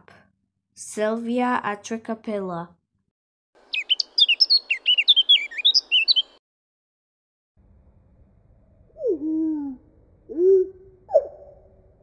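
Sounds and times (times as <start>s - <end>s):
bird warbling song: 3.6s - 6.4s
slowed bird song: 3.6s - 6.4s.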